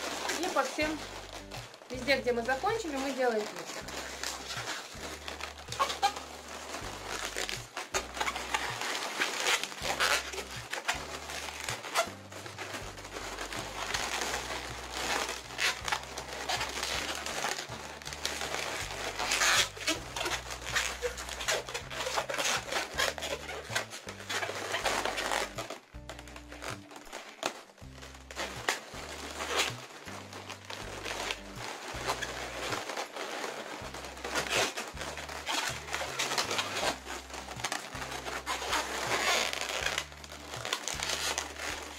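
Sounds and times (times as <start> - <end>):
rubber balloons squeaking: 0.0 - 41.9.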